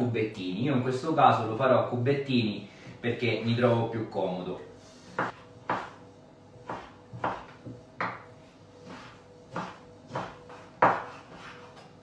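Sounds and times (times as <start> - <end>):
knife dicing on wooden board: 6.6 - 8.2, 8.8 - 11.9.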